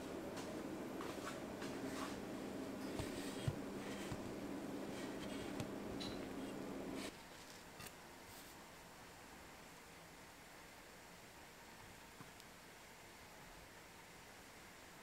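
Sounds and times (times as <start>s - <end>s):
steady hum: 0.0s - 15.0s
paper towel rustling: 2.9s - 5.8s.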